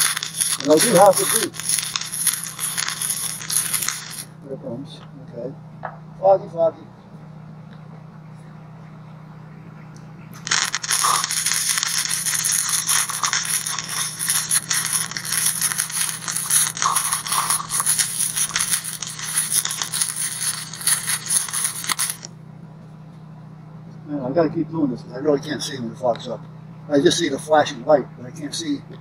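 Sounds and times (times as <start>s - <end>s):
welding arc crackling: 0.0s - 4.3s, 10.4s - 22.3s
steady low hum: 0.0s - 29.0s.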